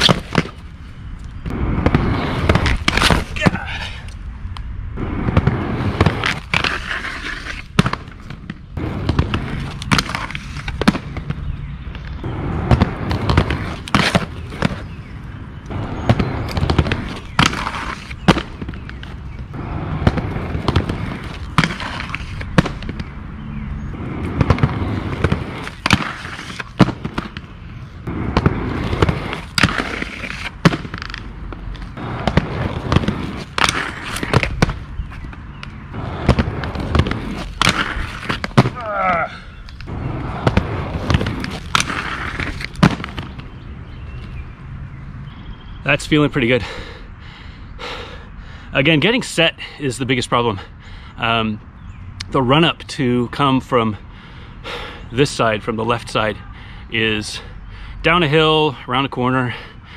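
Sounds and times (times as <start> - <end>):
skate grinding on concrete ledge: 0.0 - 0.6, 1.5 - 3.7, 5.0 - 11.4, 12.2 - 15.0, 15.8 - 23.1, 24.0 - 27.4, 28.1 - 35.3, 35.9 - 43.6
skate wheels clacking: 0.0 - 4.2, 5.0 - 23.1, 24.1 - 43.6
inline skates rolling on concrete: 0.0 - 47.0.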